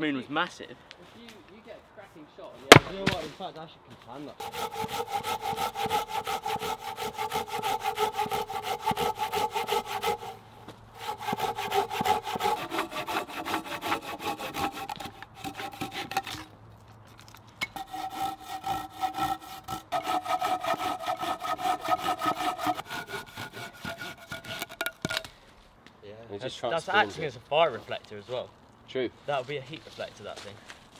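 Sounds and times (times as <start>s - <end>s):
hand saw cutting a log: 2.7s - 3.3s, 4.2s - 16.5s, 17.6s - 25.3s.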